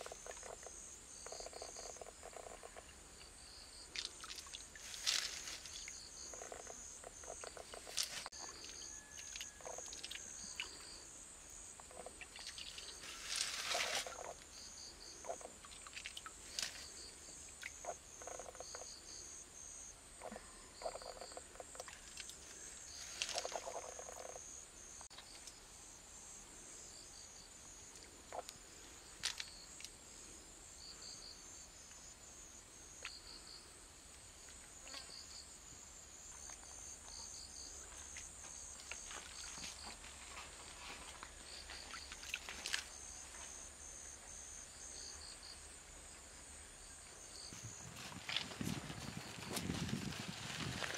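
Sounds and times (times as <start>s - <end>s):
insects chirping: 0.0s - 50.9s
stream water splashing: 3.9s - 6.0s, 12.1s - 14.4s, 15.5s - 16.9s.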